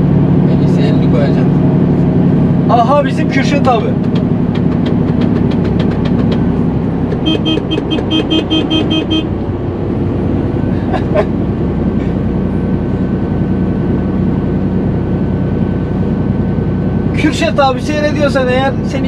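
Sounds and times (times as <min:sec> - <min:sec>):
truck engine droning: 0:00.0 - 0:19.0
short horn toots: 0:07.2 - 0:09.3.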